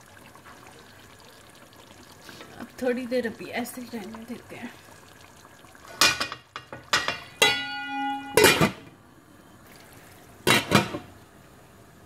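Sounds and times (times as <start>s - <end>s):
metal lid clanking on pan: 6.0s - 8.8s, 10.5s - 11.0s.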